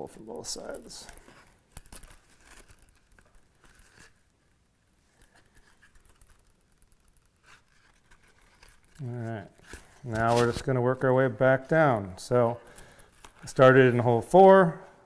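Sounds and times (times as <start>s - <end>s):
faint leather rustling: 0.2s - 10.8s.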